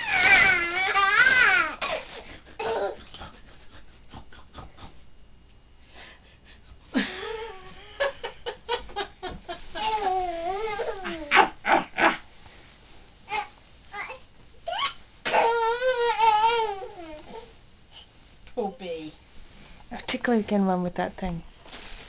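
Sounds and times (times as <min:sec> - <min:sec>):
baby squealing and whimpering: 0:00.0 - 0:03.0, 0:09.8 - 0:12.2, 0:13.3 - 0:17.5.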